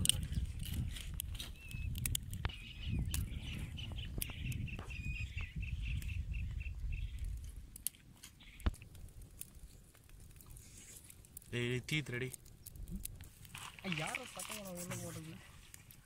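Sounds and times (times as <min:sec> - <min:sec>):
wood fire crackling: 0:00.0 - 0:16.0
bird chirping: 0:01.4 - 0:07.4, 0:08.4 - 0:08.7.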